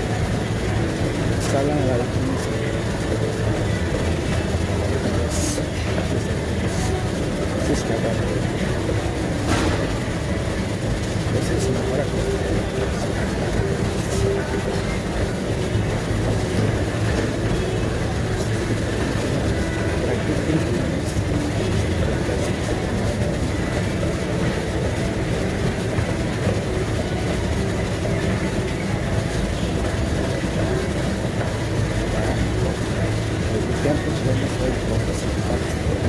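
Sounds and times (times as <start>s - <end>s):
treadmill belt and motor: 0.0s - 36.0s.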